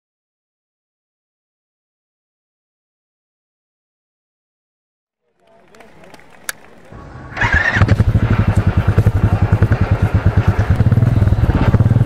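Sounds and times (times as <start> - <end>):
motorcycle engine starting and idling: 5.7 - 12.0.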